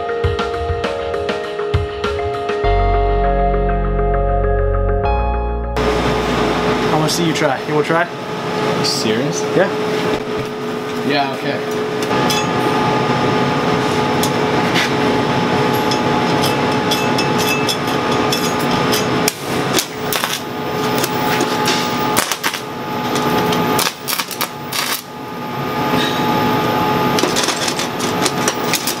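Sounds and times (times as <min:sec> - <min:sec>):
welding arc crackling: 0:12.1 - 0:25.2, 0:27.2 - 0:29.0.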